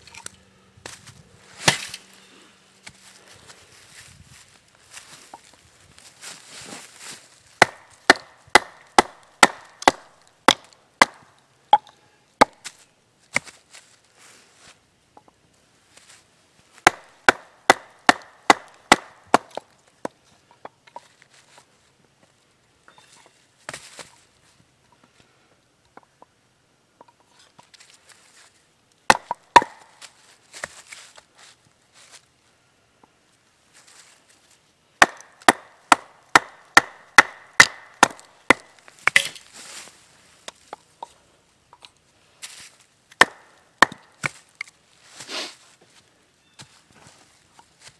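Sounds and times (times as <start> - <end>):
hatchet chopping wood: 1.6 - 2.0, 7.6 - 12.7, 16.8 - 20.2, 29.1 - 30.0, 35.0 - 39.5, 43.1 - 44.7.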